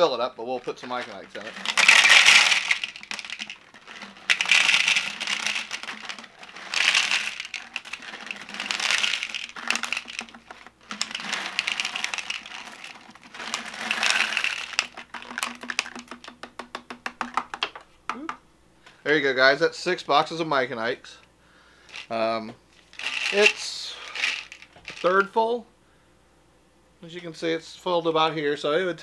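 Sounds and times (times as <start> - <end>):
candies clattering into plastic globe: 0.5 - 17.8, 21.9 - 22.2, 22.9 - 25.3.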